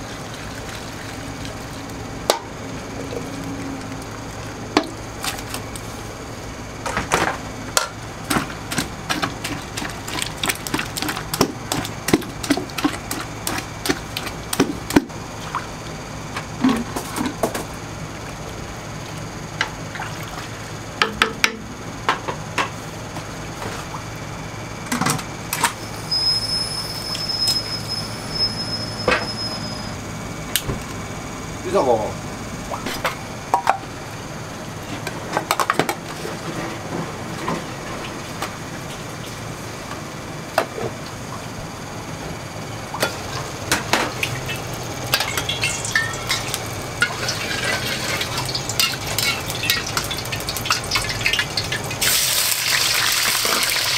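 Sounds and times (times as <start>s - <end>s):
kitchen hum: 0.0s - 53.9s
cookware and utensils clattering: 45.2s - 51.4s.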